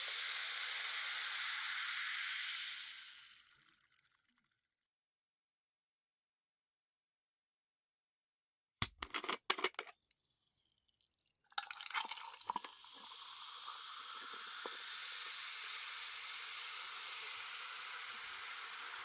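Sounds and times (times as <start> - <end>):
fizz of bubbles: 0.0 - 4.1, 11.4 - 19.0
soda poured into a glass: 0.0 - 4.2, 10.4 - 19.0
sharp clicks and cracks: 8.8 - 10.0.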